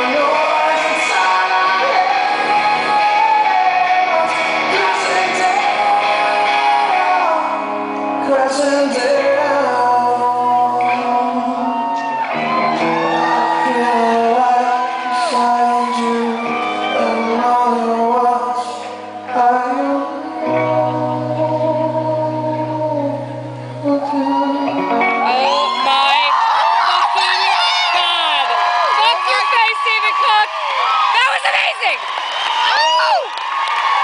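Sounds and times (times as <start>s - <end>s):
man singing: 0.0s - 25.8s
electric guitar: 0.0s - 29.0s
live rock band: 0.0s - 30.4s.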